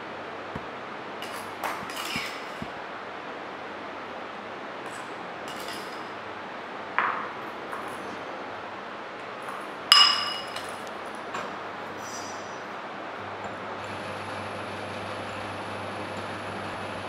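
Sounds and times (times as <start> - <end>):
steady background hiss: 0.0 - 13.8
metal spatula clinking on porcelain: 5.5 - 6.1, 9.9 - 10.8.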